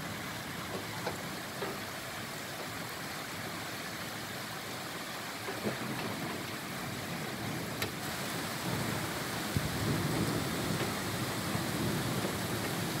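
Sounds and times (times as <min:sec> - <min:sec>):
heavy rain pouring: 0:00.0 - 0:13.0
rolling thunder rumble: 0:05.6 - 0:13.0.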